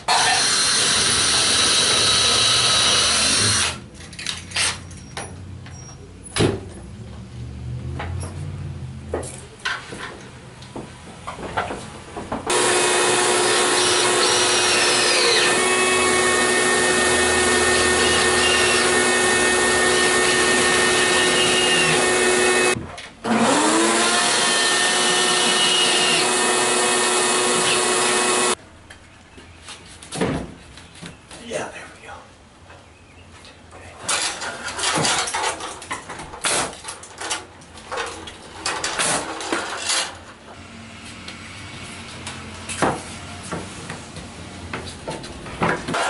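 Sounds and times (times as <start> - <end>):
cordless drill driving screws: 0.1 - 3.8, 12.5 - 28.6.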